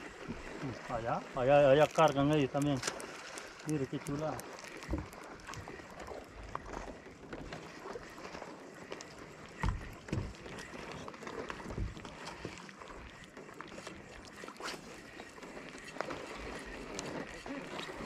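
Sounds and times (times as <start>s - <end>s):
wind and water hiss: 0.0s - 18.0s.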